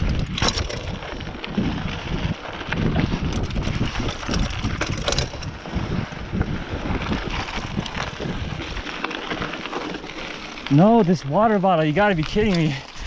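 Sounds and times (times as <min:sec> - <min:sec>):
wind buffeting microphone: 0:00.0 - 0:09.5
bike clicks and rattles: 0:00.0 - 0:13.0
tyres rumbling on dirt: 0:00.0 - 0:13.0.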